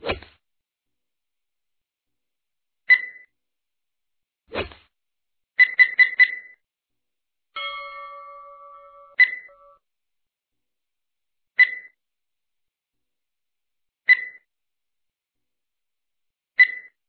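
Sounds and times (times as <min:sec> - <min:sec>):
countdown timer ticks: 0:07.6 - 0:09.8
electronic chime: 0:07.6 - 0:09.8
short electronic beeps: 0:07.6 - 0:09.8.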